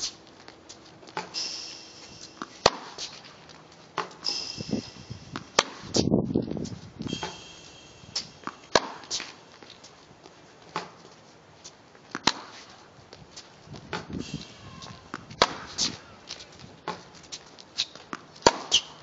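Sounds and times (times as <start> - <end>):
footsteps on hard court: 0.0 - 4.3
tennis racket striking ball: 1.1 - 6.1, 7.1 - 9.7, 12.1 - 12.6, 13.9 - 17.1, 17.8 - 19.0.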